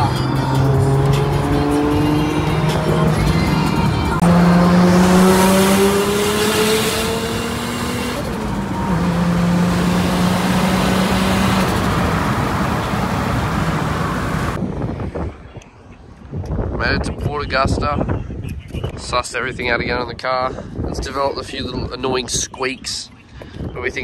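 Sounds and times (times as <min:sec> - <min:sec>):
road and wind rush: 0:00.0 - 0:24.0
car engine pulling under load: 0:04.1 - 0:14.6.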